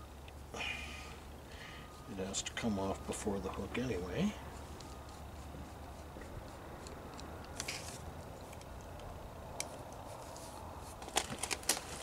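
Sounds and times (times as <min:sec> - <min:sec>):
steady low hum: 0:00.0 - 0:11.2.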